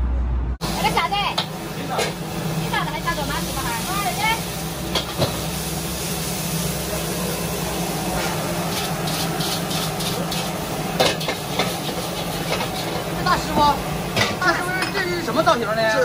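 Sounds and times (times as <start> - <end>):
gas burner roaring: 0.0 - 16.0
food sizzling in a wok: 0.6 - 16.0
metal ladle scraping a wok: 8.1 - 13.2.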